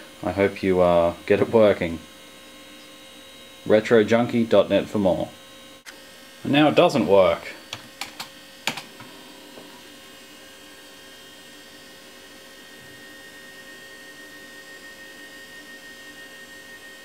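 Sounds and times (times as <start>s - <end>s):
floppy drive humming and whining: 0.0s - 17.0s.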